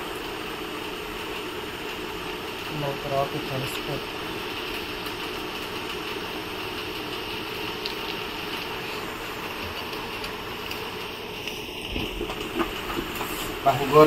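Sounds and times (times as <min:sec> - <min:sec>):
mechanical hum and hiss: 0:00.0 - 0:14.0.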